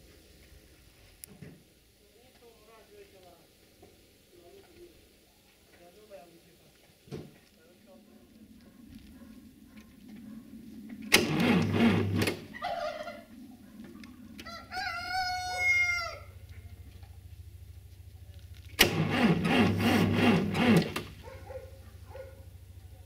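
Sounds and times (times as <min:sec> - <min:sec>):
tractor engine cranking: 0:10.8 - 0:12.6, 0:16.4 - 0:23.0
rooster crowing: 0:12.4 - 0:16.8.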